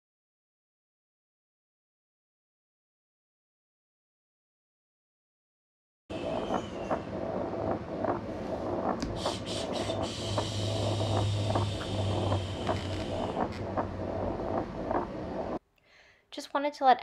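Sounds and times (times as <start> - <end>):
machine hum and hiss: 6.1 - 15.6.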